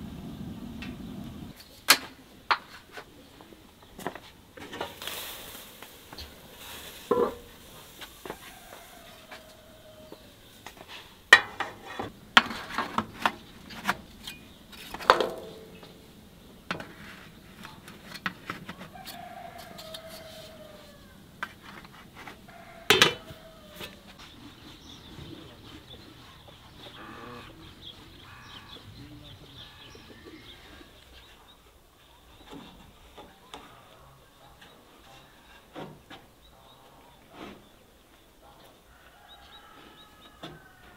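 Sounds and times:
metal cookware clattering: 11.3 - 13.2, 13.8 - 16.0, 22.9 - 23.4
chicken clucking: 18.7 - 32.3.

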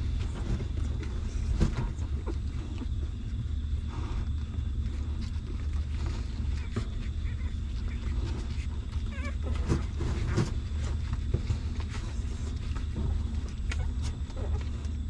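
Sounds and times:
puppies suckling: 0.0 - 15.0
puppy squeaking: 6.6 - 10.0.

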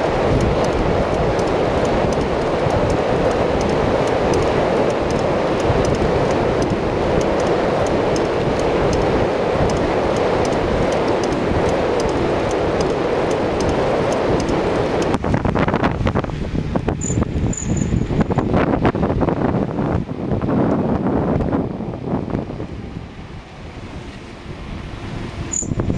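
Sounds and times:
road rumble: 0.0 - 25.9
wind rushing over microphone: 0.0 - 25.9.

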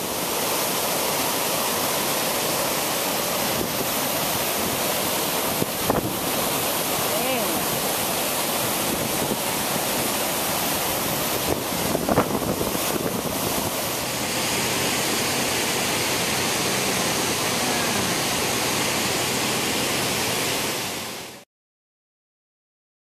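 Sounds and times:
waterfall and stream rushing: 0.0 - 21.4
wind bumps on microphone: 5.6 - 6.2, 11.4 - 13.8.

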